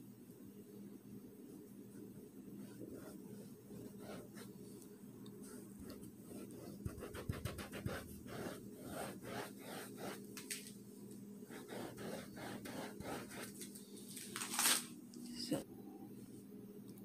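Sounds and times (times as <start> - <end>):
faint steady hum: 0.0 - 17.0
paintbrush scratching on canvas: 2.5 - 4.7, 5.4 - 10.4, 11.5 - 13.6.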